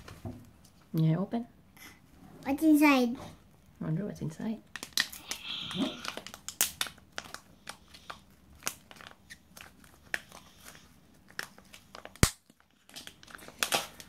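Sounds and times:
foil wrapper crinkling and tearing: 4.7s - 14.0s.

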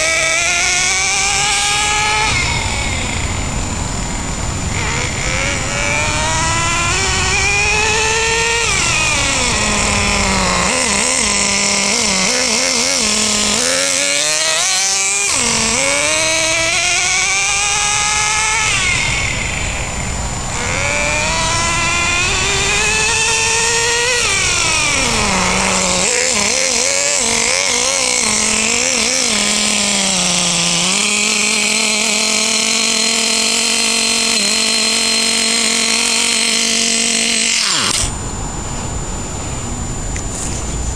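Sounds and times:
small nitro engine revving: 0.0s - 40.9s.

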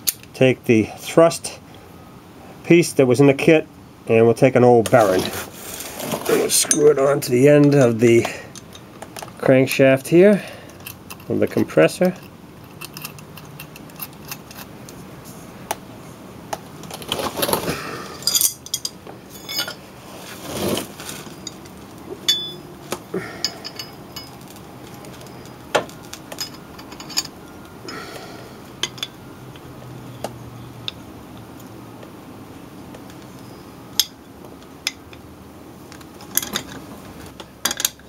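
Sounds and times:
metal tools scraping: 4.9s - 8.9s, 10.4s - 15.0s, 17.1s - 27.4s
metal tools clinking: 6.3s - 9.3s, 10.6s - 14.7s, 18.1s - 19.9s, 20.5s - 27.4s, 28.8s - 29.2s, 36.2s - 36.8s, 37.6s - 38.0s.

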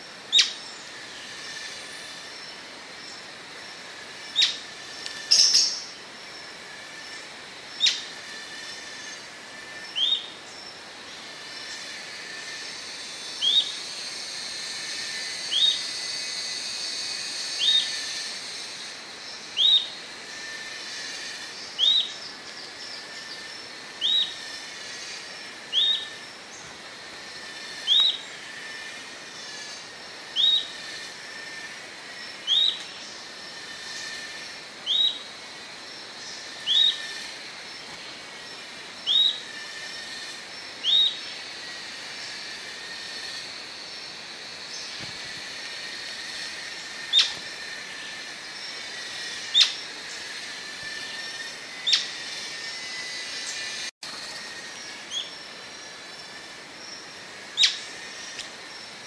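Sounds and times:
high-pitched background hiss: 0.0s - 59.0s
bird whistled call: 19.6s - 19.9s, 24.0s - 24.4s, 30.4s - 30.7s, 32.5s - 32.8s, 34.9s - 35.2s, 36.6s - 37.1s, 39.1s - 39.6s, 40.8s - 41.2s, 47.1s - 47.4s.

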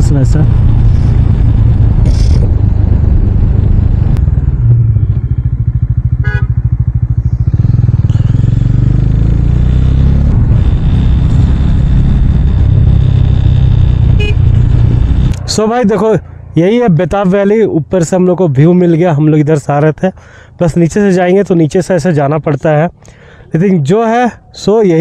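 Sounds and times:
motorcycle engine running: 0.0s - 16.7s
wind rumble: 0.0s - 17.2s
short horn beep: 6.2s - 6.6s, 14.1s - 14.6s.

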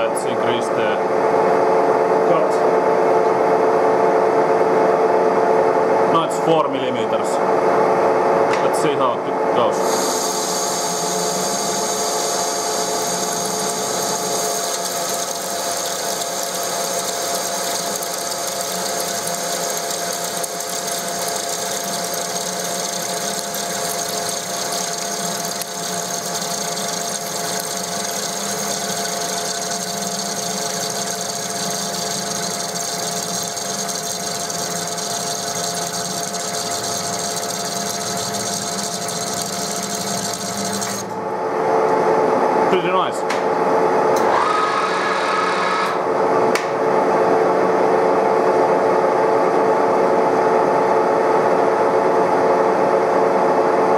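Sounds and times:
lathe cutting steel: 9.8s - 41.1s.

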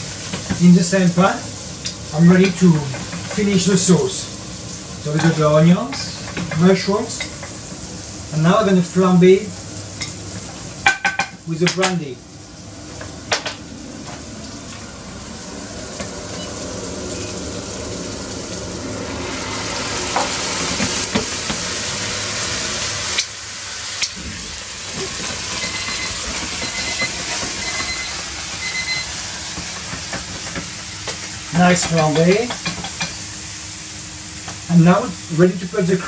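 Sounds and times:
vegetables sizzling in a frying pan: 0.0s - 36.0s
flambe hiss: 15.0s - 31.8s.

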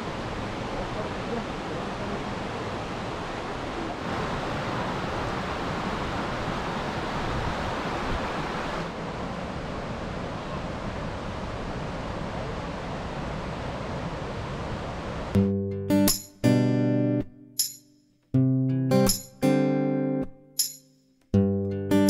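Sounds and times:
river and waterfall rushing: 0.0s - 15.4s.

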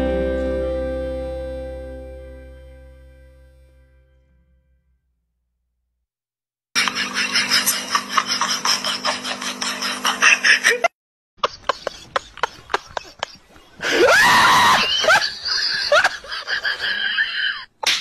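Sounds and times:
person laughing and shrieking: 6.8s - 10.9s, 11.5s - 17.7s.

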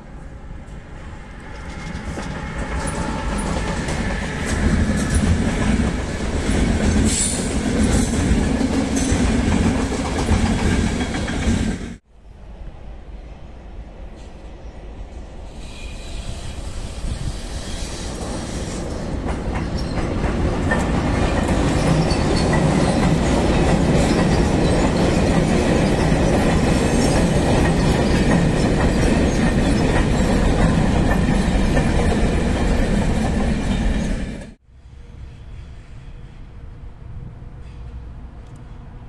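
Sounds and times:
freight train wheels clacking: 1.4s - 12.0s, 18.1s - 34.6s.

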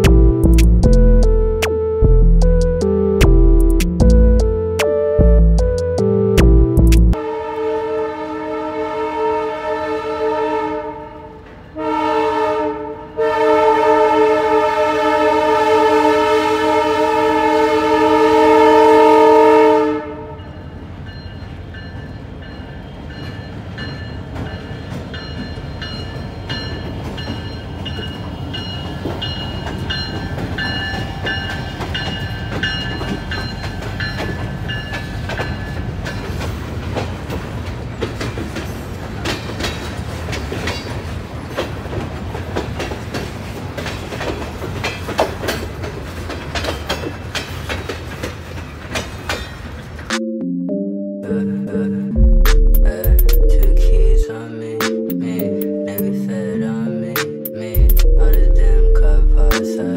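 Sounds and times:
locomotive air horn blast: 7.2s - 20.4s
wheels clicking over rail joints: 23.2s - 50.1s.

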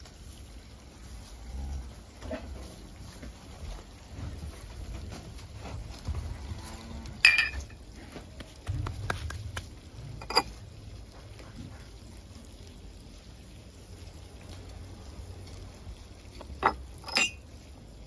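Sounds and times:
kitchenware clinking: 7.2s - 7.8s, 10.2s - 10.6s, 16.4s - 17.4s.

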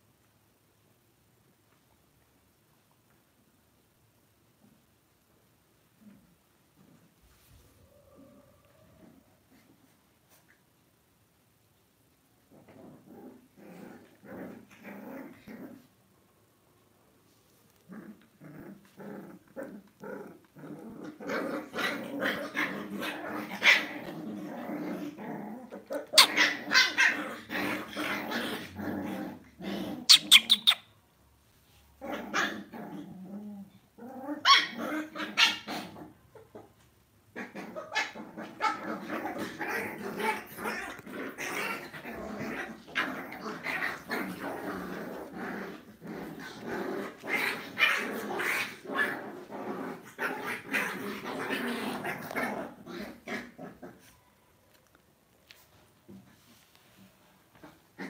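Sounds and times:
puppies growling: 6.0s - 10.5s, 12.5s - 16.0s, 17.8s - 30.8s, 32.0s - 54.2s
puppy yips and barks: 26.0s - 27.2s, 30.1s - 30.9s, 34.4s - 34.8s.

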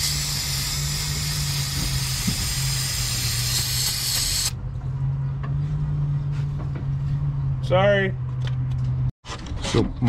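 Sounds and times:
pressurized spray hissing: 0.0s - 4.5s.

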